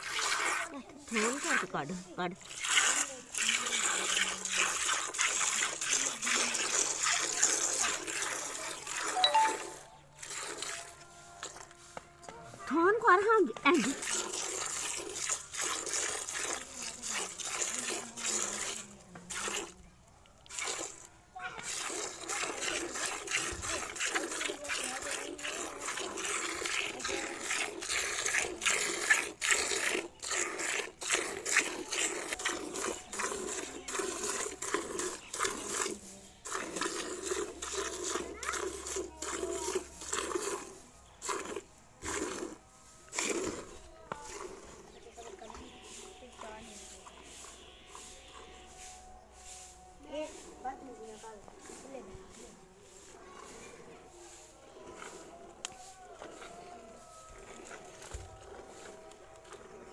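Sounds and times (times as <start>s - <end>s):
milk squirting into steel pail: 0.0s - 11.7s, 13.2s - 48.0s.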